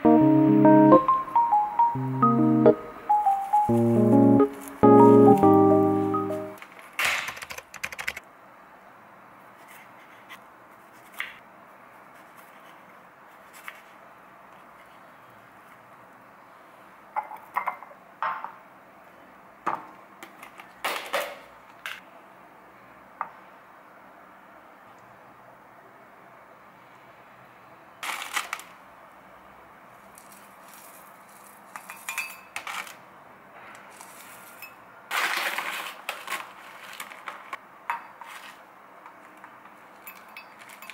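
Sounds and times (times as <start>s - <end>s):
faint steady hiss: 0.0s - 6.9s.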